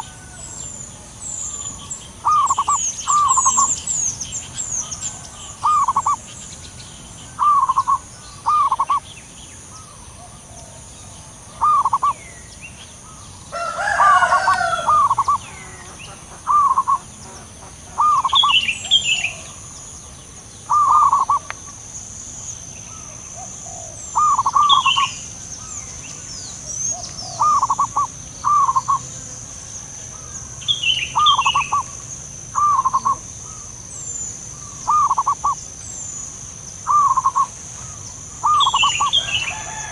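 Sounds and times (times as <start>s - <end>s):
louder bird call: 0.0s - 4.0s, 4.7s - 6.2s, 7.4s - 9.1s, 11.5s - 12.2s, 13.1s - 19.7s, 20.7s - 21.8s, 22.9s - 25.8s, 26.8s - 29.1s, 29.8s - 33.7s, 34.5s - 35.6s, 36.8s - 39.9s
doves cooing: 0.0s - 6.3s, 7.4s - 9.0s, 9.8s - 12.2s, 13.1s - 19.8s, 20.7s - 21.9s, 22.9s - 25.8s, 26.6s - 33.8s, 34.5s - 35.6s, 36.8s - 39.9s
birds chirping faintly: 0.0s - 39.9s.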